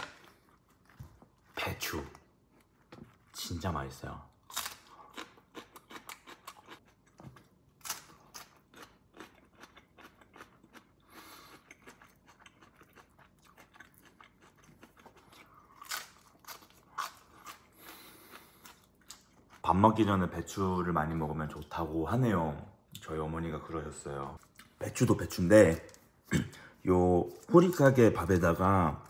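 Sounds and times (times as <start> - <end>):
crunching and chewing cabbage: 4.3 - 19.8.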